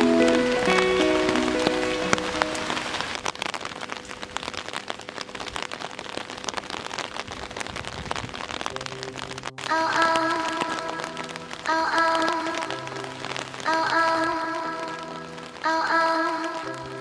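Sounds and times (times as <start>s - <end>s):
background music: 0.0s - 3.1s, 8.7s - 17.0s
rain on wet pavement: 0.0s - 17.0s.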